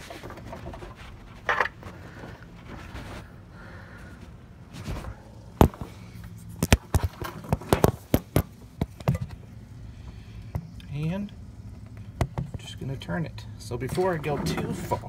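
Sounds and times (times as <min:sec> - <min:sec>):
sharp clicks and knocks: 0:06.5 - 0:09.4, 0:11.8 - 0:12.8.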